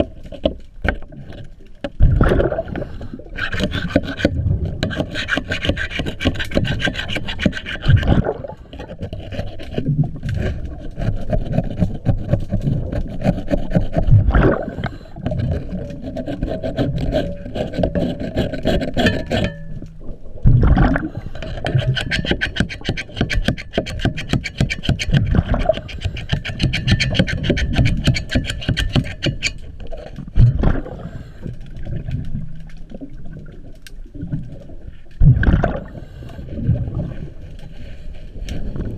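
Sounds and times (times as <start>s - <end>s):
underwater rasping scraping: 0.0s - 33.1s, 34.2s - 38.9s.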